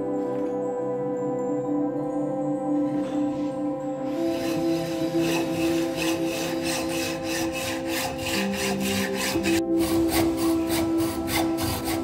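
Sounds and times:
background music: 0:00.0 - 0:12.0
hacksaw cutting metal: 0:04.1 - 0:12.0.

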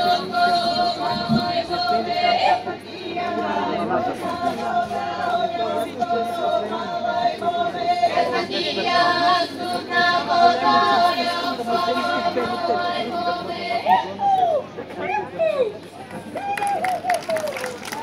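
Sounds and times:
female choir singing a cappella: 0:00.0 - 0:14.2.

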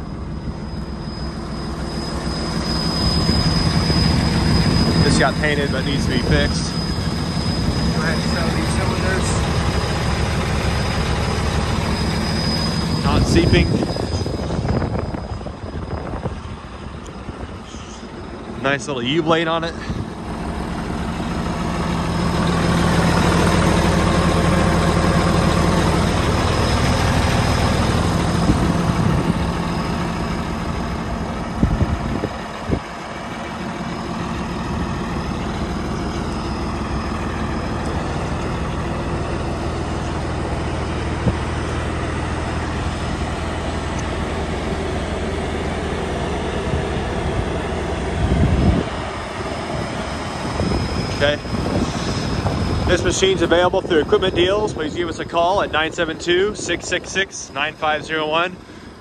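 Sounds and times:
bulldozer diesel engine idling: 0:00.0 - 0:59.0.

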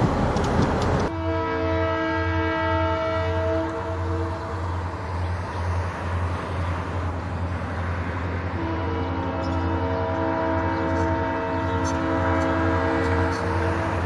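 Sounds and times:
diesel engine rumble: 0:00.0 - 0:01.1
locomotive air horn chord: 0:01.1 - 0:04.8, 0:08.5 - 0:14.0.

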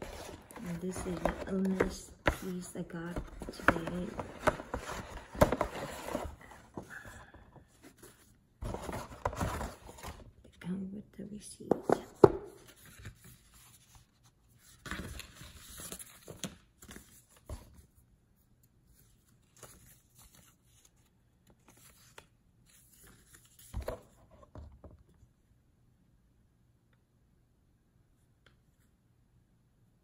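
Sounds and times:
paper rustling and crinkling: 0:00.0 - 0:06.9, 0:07.8 - 0:10.3, 0:12.2 - 0:17.9, 0:18.9 - 0:24.2.

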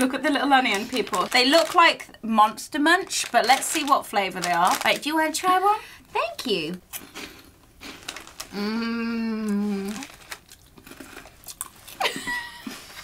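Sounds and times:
plastic snack bag crinkling: 0:00.0 - 0:02.1, 0:02.9 - 0:05.6, 0:07.2 - 0:08.6, 0:09.7 - 0:12.1
corn puffs crunching: 0:00.5 - 0:02.0, 0:03.0 - 0:05.2, 0:06.9 - 0:08.7, 0:09.5 - 0:12.2.

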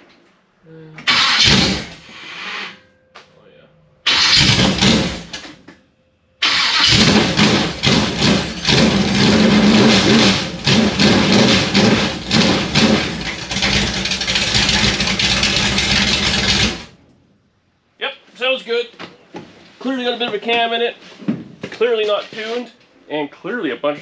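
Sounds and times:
loud uneven engine running: 0:06.8 - 0:17.0.

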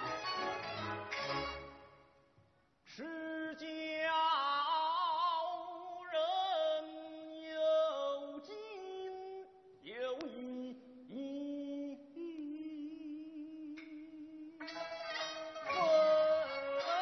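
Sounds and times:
person singing long notes: 0:15.6 - 0:17.0.

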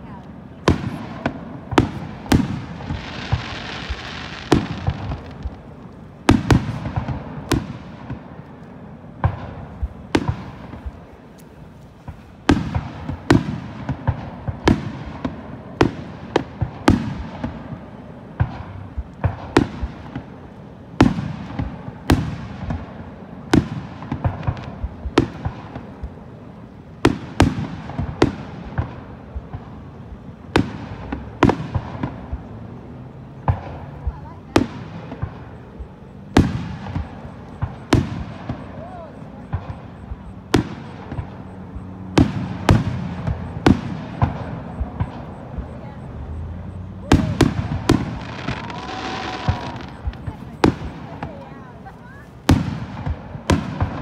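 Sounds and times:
firework shells bursting: 0:00.8 - 0:07.7, 0:46.4 - 0:51.4.

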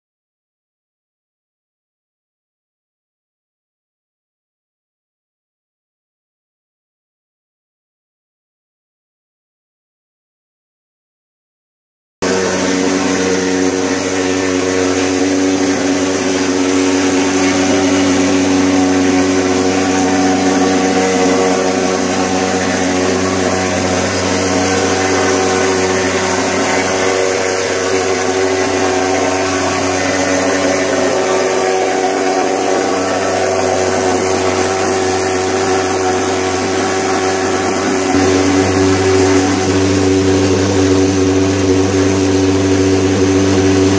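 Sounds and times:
thermal fogger engine drone: 0:12.2 - 0:43.9.

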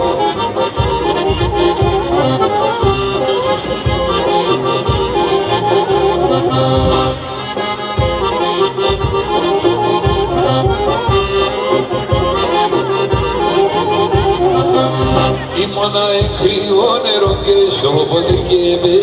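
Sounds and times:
accordion folk dance tune: 0:00.0 - 0:19.0
low regular beat: 0:00.0 - 0:19.0.

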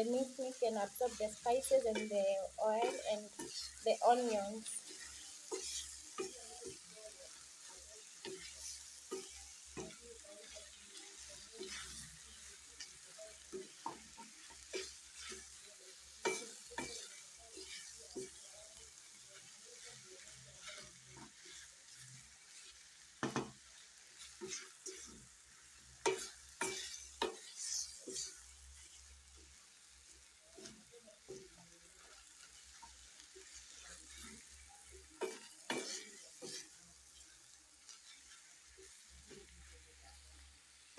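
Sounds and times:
meat and potatoes sizzling in pan: 0:00.0 - 0:40.9
wooden spoon scraping pan: 0:00.8 - 0:07.1, 0:08.2 - 0:12.9, 0:19.3 - 0:29.4, 0:30.6 - 0:39.7.

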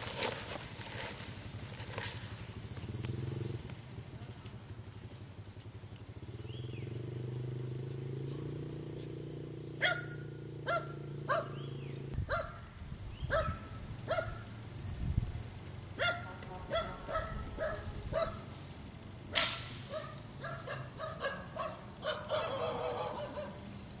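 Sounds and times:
dog barking: 0:09.8 - 0:11.6, 0:12.3 - 0:12.6, 0:13.3 - 0:14.4, 0:16.0 - 0:18.5, 0:19.9 - 0:23.6.

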